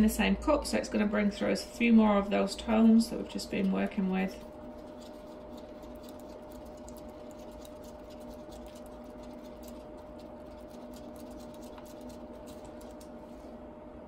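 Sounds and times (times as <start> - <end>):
steady hum: 0.0 - 14.0
stick scraping paper cup: 3.5 - 13.1.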